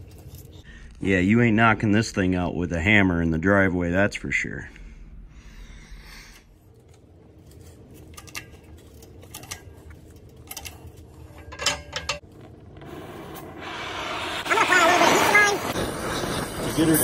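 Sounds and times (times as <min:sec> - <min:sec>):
hiss: 0:12.8 - 0:17.0.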